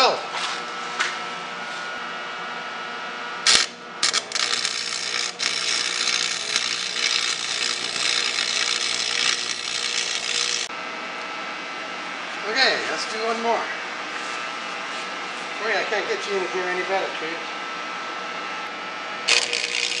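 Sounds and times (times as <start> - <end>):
welding arc burning: 3.4 - 10.7, 19.2 - 20.0.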